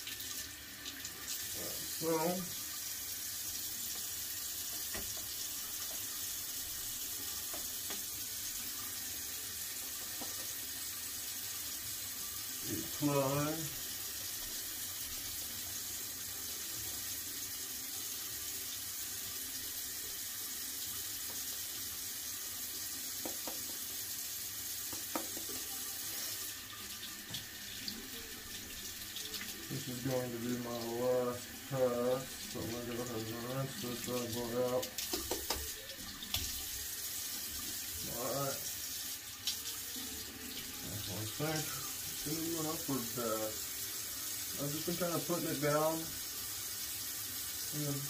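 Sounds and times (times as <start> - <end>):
sink tap running: 0.0 - 48.0
tap running into sink: 3.9 - 6.2, 7.2 - 8.2, 9.8 - 10.7, 23.1 - 24.0, 24.8 - 25.8, 27.1 - 27.5, 34.9 - 36.6.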